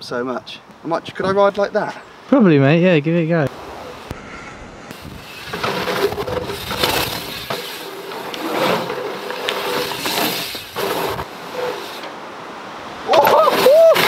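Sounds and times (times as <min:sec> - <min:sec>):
bike tyres rolling on dirt: 0:04.9 - 0:14.0.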